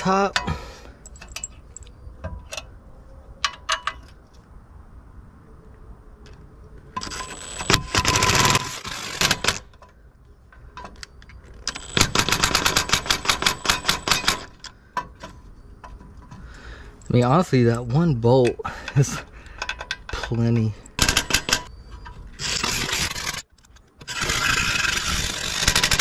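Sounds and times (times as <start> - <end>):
impact driver rattling: 20.9 - 21.7.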